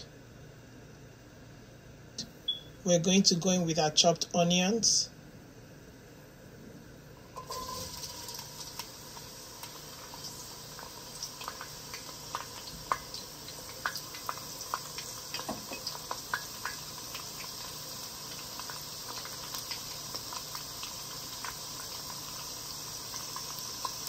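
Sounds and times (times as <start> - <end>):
onions sizzling in hot oil: 7.2 - 24.0
crackles and pops of frying: 7.3 - 24.0.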